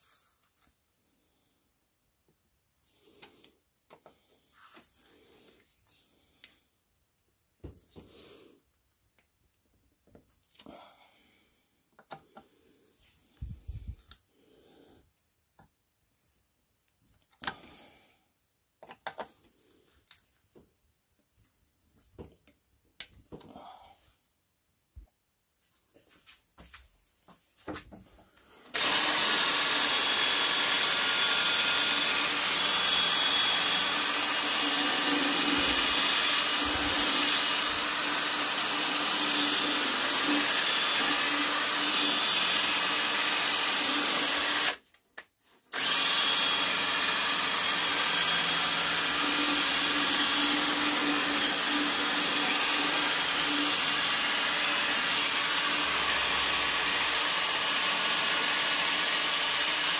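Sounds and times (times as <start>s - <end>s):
cordless drill running: 28.7s - 44.8s, 45.7s - 59.9s.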